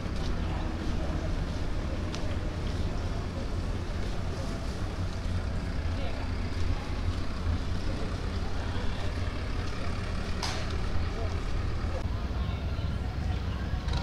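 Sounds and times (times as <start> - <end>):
engine rumbling: 0.0 - 14.0
people talking: 0.0 - 14.0.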